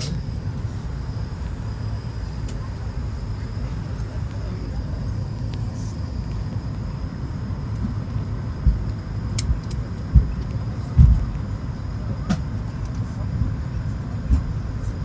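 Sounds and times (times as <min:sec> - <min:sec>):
aircraft cabin air rumble: 0:00.0 - 0:15.0
dull low thumps: 0:07.9 - 0:11.6.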